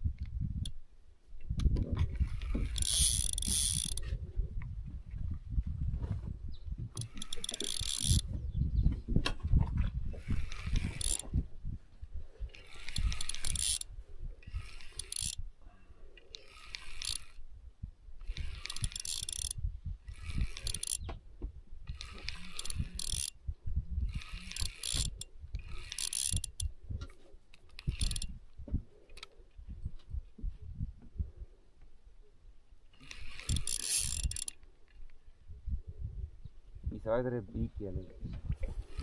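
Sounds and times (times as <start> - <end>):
fishing reel whirring and clicking: 1.6 - 4.2, 6.9 - 8.3, 10.1 - 11.4, 12.4 - 15.5, 16.2 - 17.6, 18.2 - 21.1, 21.8 - 23.4, 24.0 - 26.8, 27.5 - 28.5, 29.1 - 29.4, 32.9 - 35.2.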